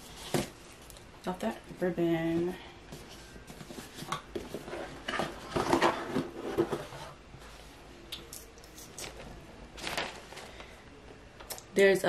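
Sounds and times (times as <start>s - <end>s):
paper rustling and scraping: 9.0s - 10.7s.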